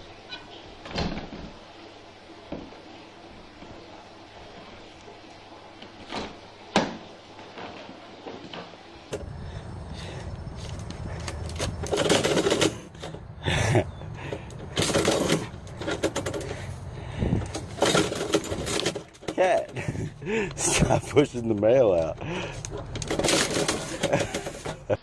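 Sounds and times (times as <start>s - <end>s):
mail slot flap clacking: 22.6s - 25.0s.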